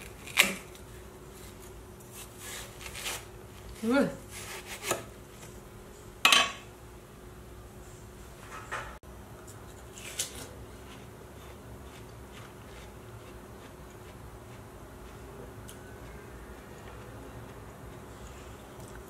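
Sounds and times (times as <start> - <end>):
knife cutting on wooden board: 4.4 - 5.1.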